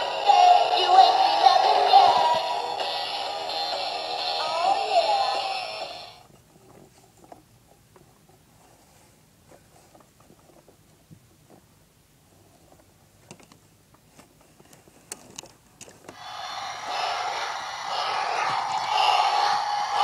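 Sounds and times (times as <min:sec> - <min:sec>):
loud steady noise: 0:16.2 - 0:20.0.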